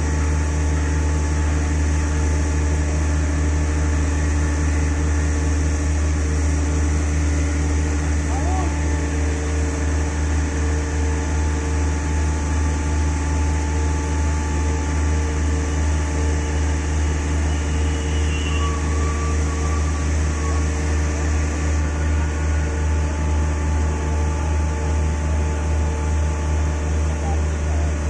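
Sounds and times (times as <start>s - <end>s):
heavy construction machinery humming: 0.0s - 28.0s
whining machine tones: 0.0s - 28.0s.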